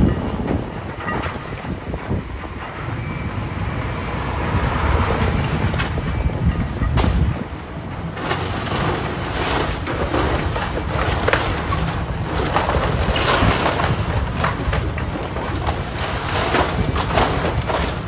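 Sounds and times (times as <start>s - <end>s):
excavator engine rumbling: 0.0s - 18.0s
falling debris: 5.0s - 18.0s
timber cracking and splintering: 8.1s - 18.0s.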